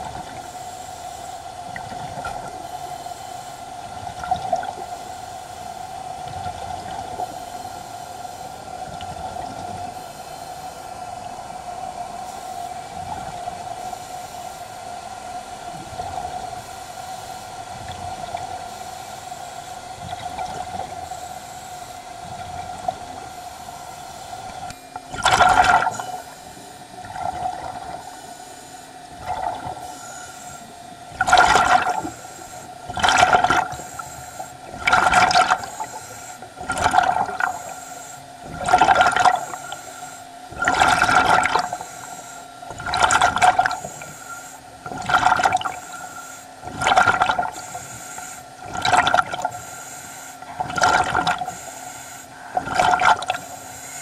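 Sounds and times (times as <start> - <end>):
faint steady hum: 0.0 - 54.0
scuba regulator bubbling: 3.8 - 10.1, 19.9 - 21.5, 22.1 - 28.4, 29.1 - 49.8, 50.4 - 53.8.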